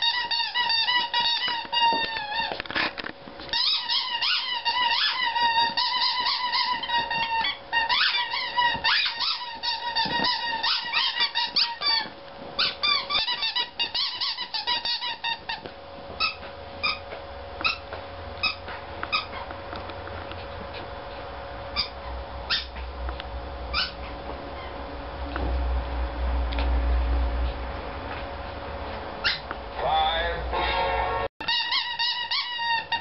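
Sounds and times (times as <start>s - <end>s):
rubber squeaky toy squeaking: 0.0s - 15.6s, 16.2s - 17.8s, 18.4s - 19.5s, 21.8s - 22.8s, 23.7s - 24.8s, 29.2s - 29.4s, 31.4s - 33.0s.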